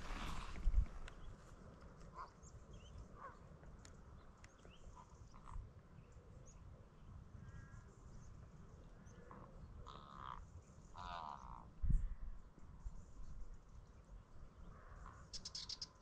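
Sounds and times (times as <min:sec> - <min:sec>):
footsteps: 0:00.0 - 0:01.1
mid-pitched bird calls: 0:14.6 - 0:16.0
high bird chirps: 0:15.4 - 0:16.0.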